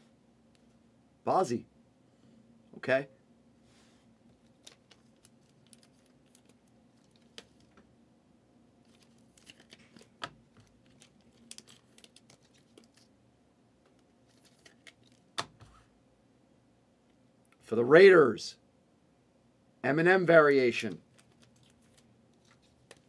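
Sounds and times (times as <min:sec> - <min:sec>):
trading cards rustling and clicking: 0:04.3 - 0:07.8, 0:08.8 - 0:13.1, 0:13.9 - 0:15.8, 0:21.0 - 0:23.0.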